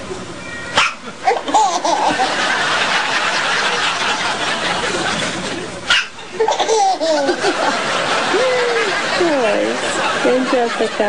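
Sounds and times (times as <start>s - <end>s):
baby belly laughter: 1.1s - 2.6s, 6.3s - 9.2s.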